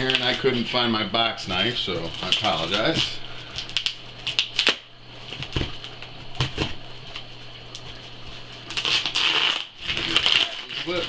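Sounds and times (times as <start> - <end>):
tape tearing off cardboard: 8.7 - 11.0.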